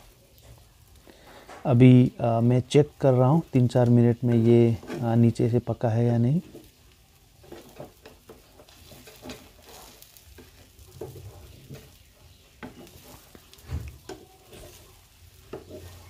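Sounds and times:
oil sizzling: 0.0s - 16.0s
metal spatula scraping a pan: 4.0s - 5.6s, 6.4s - 16.0s.

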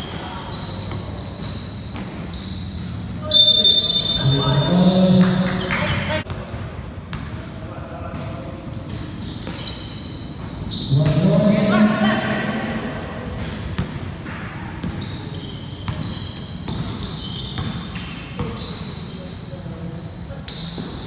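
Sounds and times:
sneakers squeaking on court: 0.0s - 6.5s, 8.0s - 21.0s
basketball bouncing: 13.2s - 15.2s, 15.8s - 18.7s.

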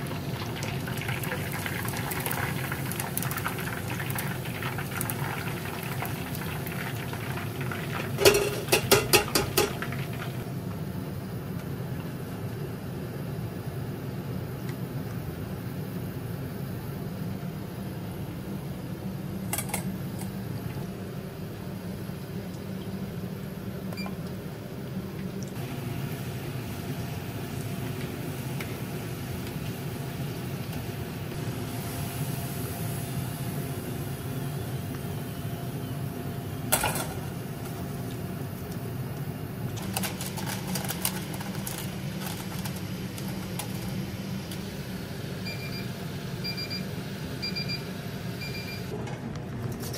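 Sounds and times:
potatoes sizzling in hot oil: 0.1s - 10.4s
metal strainer and tongs clinking: 8.2s - 9.8s.

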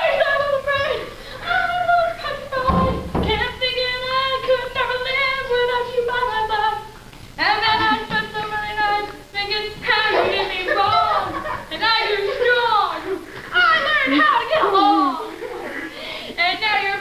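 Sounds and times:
girl singing unaccompanied: 0.0s - 15.2s, 16.4s - 17.0s.

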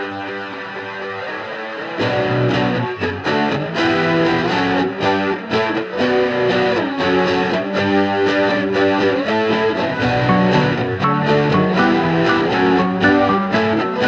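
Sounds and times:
distorted electric guitar chords: 9.8s - 14.0s
bass: 10.0s - 14.0s.

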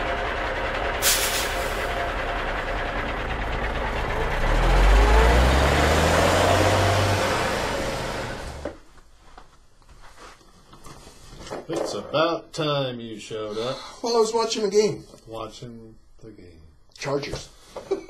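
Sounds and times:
truck engine running: 0.0s - 8.8s
short burst of hiss: 1.0s - 1.9s.

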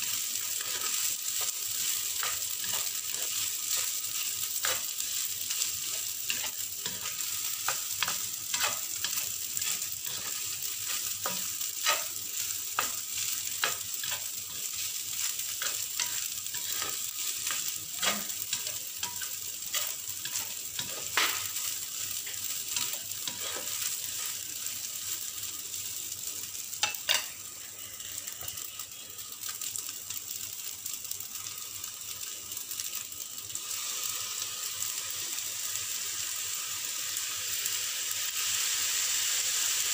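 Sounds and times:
rice sizzling in wok: 0.0s - 39.9s
spatula scraping pan: 0.5s - 24.4s.

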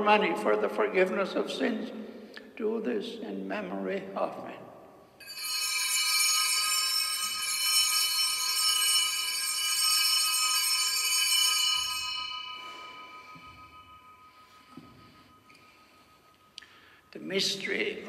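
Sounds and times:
altar bells ringing: 5.2s - 17.7s.

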